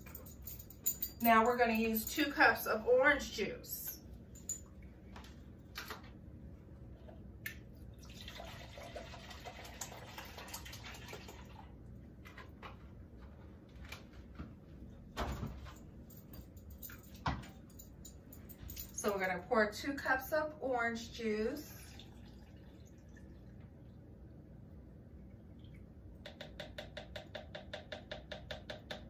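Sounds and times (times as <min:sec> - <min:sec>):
juice pouring into a cup: 0:07.8 - 0:11.8, 0:21.8 - 0:24.4.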